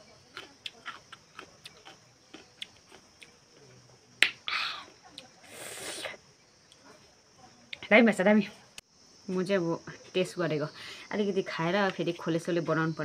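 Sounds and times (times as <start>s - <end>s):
short hiss: 5.5s - 6.2s.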